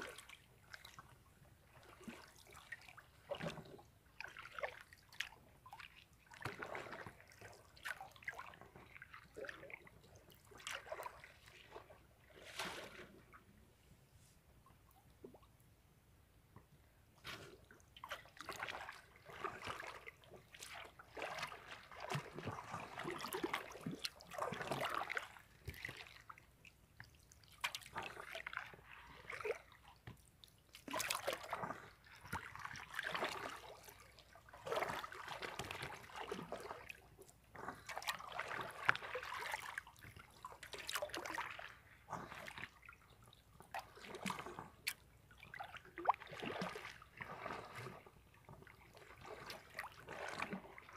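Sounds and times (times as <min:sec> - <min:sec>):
water splashing from swimmers: 0:18.1 - 0:26.3, 0:30.7 - 0:43.0, 0:43.7 - 0:50.9.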